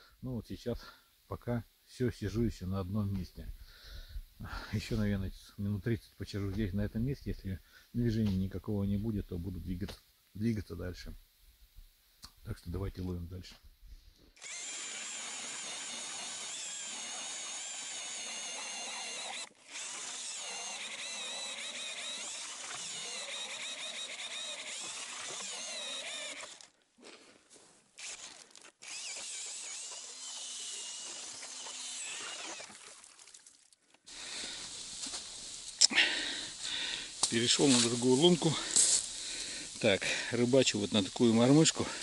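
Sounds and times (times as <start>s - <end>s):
ice auger boring through ice: 14.4s - 26.8s, 28.0s - 33.3s, 34.1s - 42.0s.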